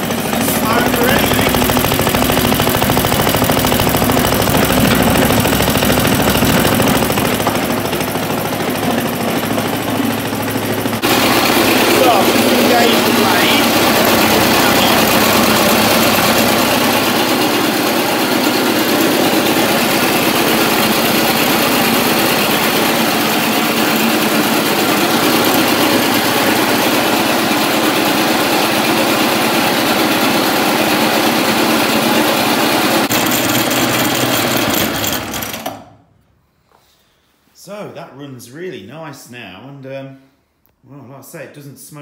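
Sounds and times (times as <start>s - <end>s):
lawnmower engine running: 0.0s - 36.0s.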